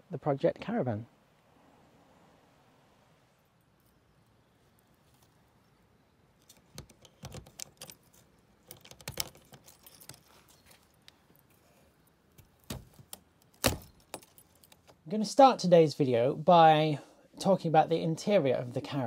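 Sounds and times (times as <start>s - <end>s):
keys jangling: 7.1s - 11.5s, 13.8s - 14.8s.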